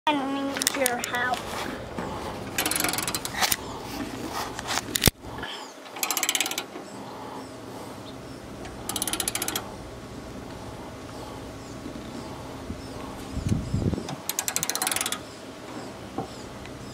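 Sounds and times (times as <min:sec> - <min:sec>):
ratchet wrench clicking: 0:02.5 - 0:03.6, 0:05.9 - 0:06.7, 0:08.6 - 0:09.7, 0:14.1 - 0:15.2.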